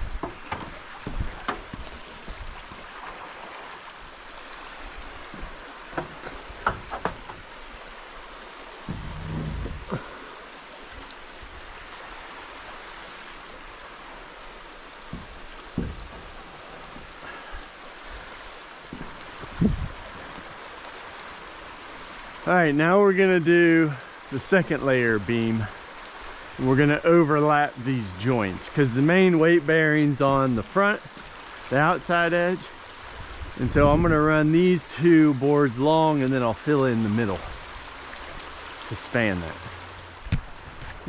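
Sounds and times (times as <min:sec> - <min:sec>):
wooden knocks and thumps: 0:00.0 - 0:02.8, 0:05.3 - 0:07.5, 0:08.8 - 0:10.0, 0:15.0 - 0:17.3, 0:18.9 - 0:20.5
creek water running: 0:00.0 - 0:41.0.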